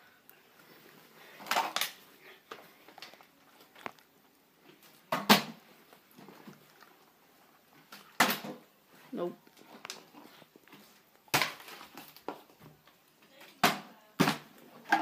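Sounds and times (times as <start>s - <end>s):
plastic bottles landing with thuds: 1.4s - 2.0s, 5.1s - 5.6s, 7.9s - 8.7s, 11.3s - 12.8s, 13.5s - 15.0s.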